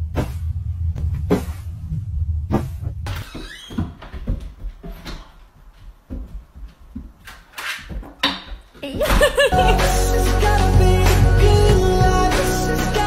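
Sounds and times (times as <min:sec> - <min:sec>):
soft knocks and bumps: 0:02.5 - 0:07.3
music with heavy low beat: 0:09.5 - 0:13.0.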